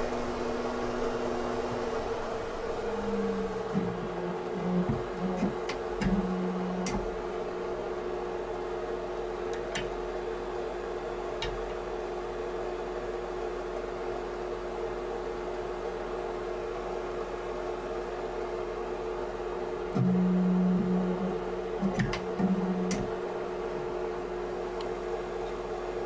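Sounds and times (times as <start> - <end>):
hydraulic power unit humming: 0.0 - 11.8, 19.8 - 26.0.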